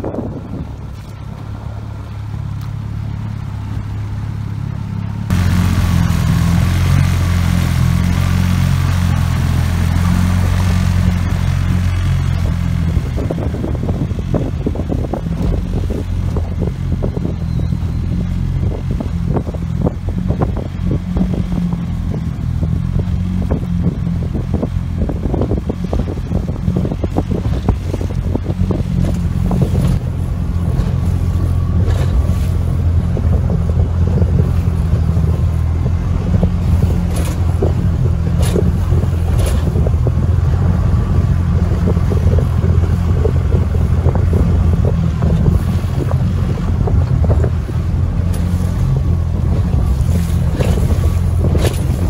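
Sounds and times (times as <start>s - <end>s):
outboard motor running: 0.0s - 52.0s.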